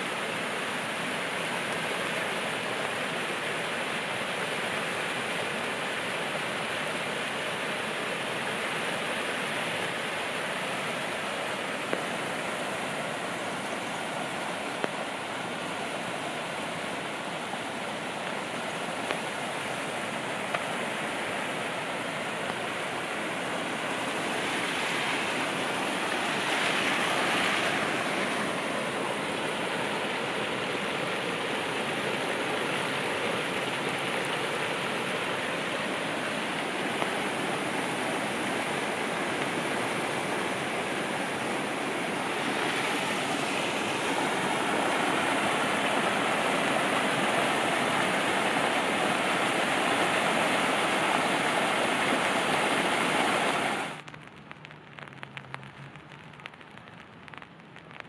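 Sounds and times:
steady rain hissing: 0:00.0 - 0:58.0
raindrop ticks: 0:53.9 - 0:58.0.

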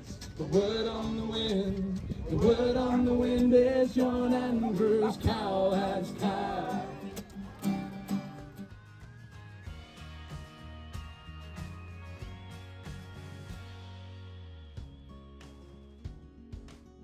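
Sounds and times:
acoustic guitar: 0:00.0 - 0:17.0
men singing in harmony: 0:00.4 - 0:07.2.

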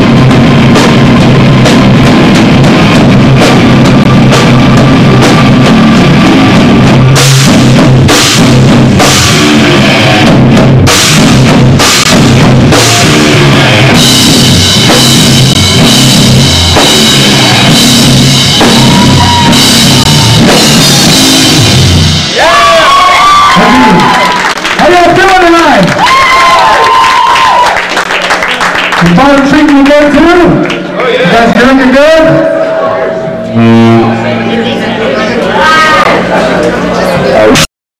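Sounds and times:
bass drum: 0:00.0 - 0:22.6
live rock band playing: 0:00.0 - 0:24.7, 0:30.2 - 0:37.7.

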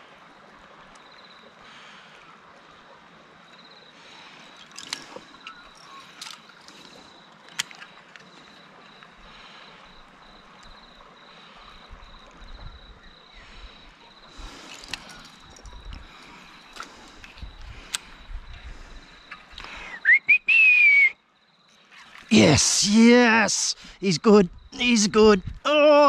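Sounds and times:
insect trilling: 0:04.5 - 0:11.0, 0:14.1 - 0:18.4, 0:19.0 - 0:26.0.

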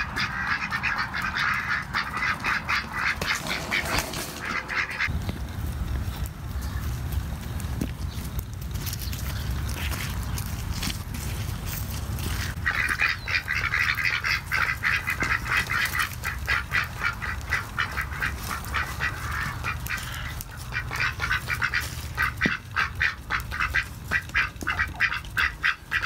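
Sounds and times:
ducks quacking: 0:00.0 - 0:05.1, 0:12.2 - 0:26.0.

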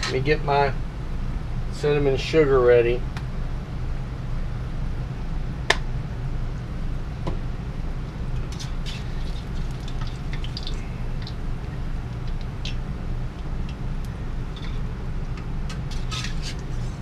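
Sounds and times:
steady low hum: 0:00.0 - 0:17.0
food deep-frying in hot oil: 0:08.4 - 0:13.8.

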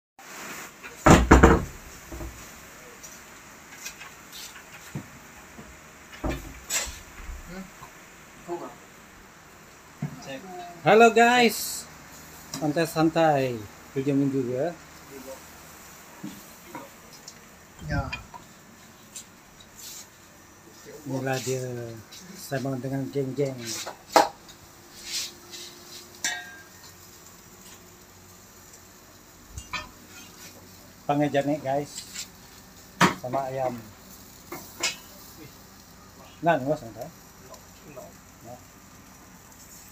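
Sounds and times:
soft scrape: 0:19.2 - 0:20.2, 0:24.9 - 0:26.2
metal tongs clinking on grill rack: 0:26.2 - 0:27.0, 0:29.5 - 0:30.8, 0:34.5 - 0:35.3.

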